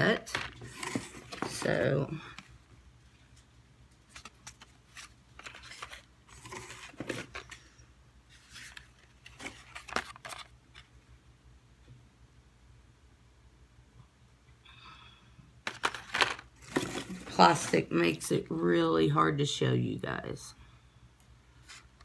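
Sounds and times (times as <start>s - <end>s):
plastic packaging crinkling and clicking: 15.7s - 17.4s.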